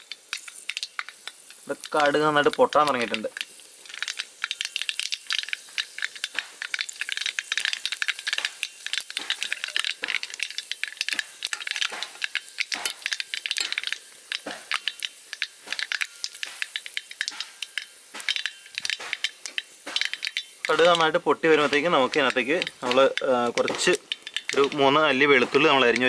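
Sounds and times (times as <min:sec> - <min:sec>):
seeds popping in hot oil: 0:00.0 - 0:26.0.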